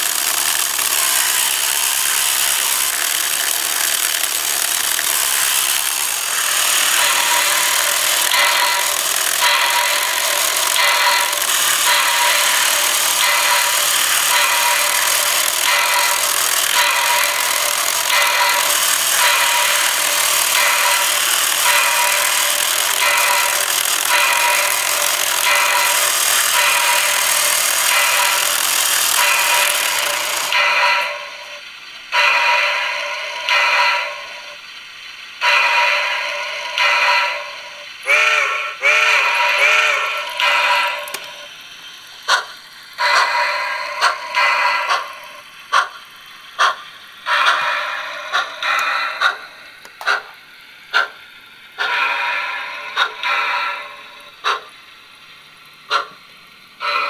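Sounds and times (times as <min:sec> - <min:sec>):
turntable motor grinding: 0:00.0 - 0:31.2
model train steam chuffs: 0:00.0 - 0:57.0
steam whistle toots: 0:35.4 - 0:41.5.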